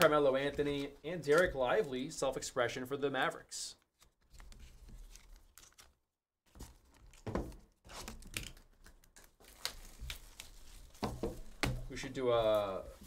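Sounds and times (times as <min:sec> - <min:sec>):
plastic sleeve rustling: 0:00.0 - 0:02.2, 0:03.8 - 0:13.0
foil wrappers crinkling: 0:07.9 - 0:11.6.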